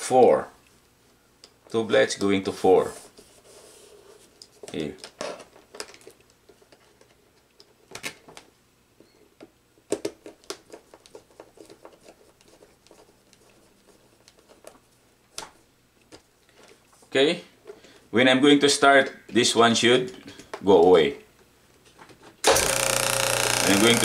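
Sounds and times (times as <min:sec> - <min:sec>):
wire leads clicking into terminals: 0:22.4 - 0:24.0.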